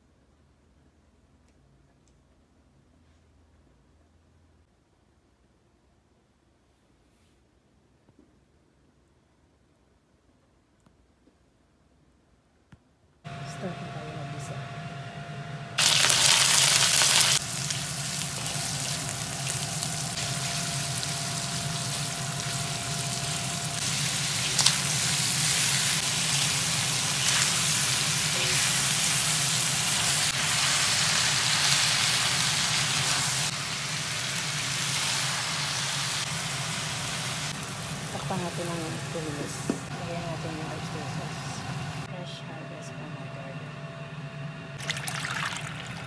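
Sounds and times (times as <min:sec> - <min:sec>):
food sizzling in hot oil: 0:15.8 - 0:39.9.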